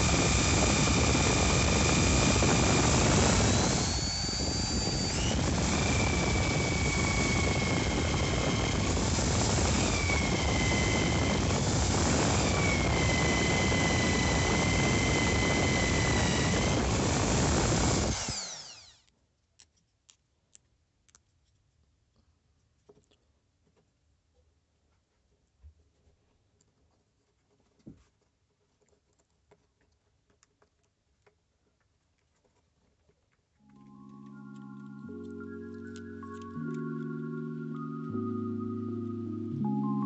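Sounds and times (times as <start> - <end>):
electric drill boring into wood: 0.0 - 19.1.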